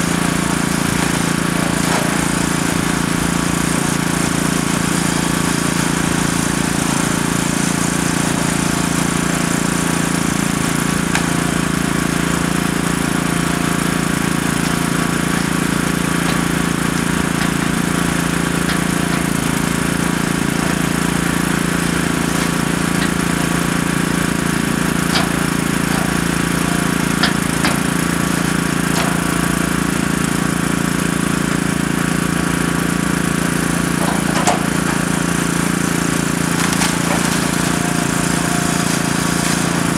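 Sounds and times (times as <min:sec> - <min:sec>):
excavator diesel engine running: 0:00.0 - 0:39.9
debris knocking: 0:08.5 - 0:30.3, 0:33.3 - 0:39.9.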